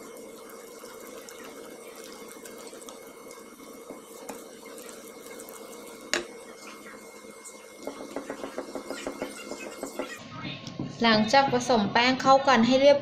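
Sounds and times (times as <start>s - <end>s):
whisk stirring wet batter: 0.0s - 10.2s.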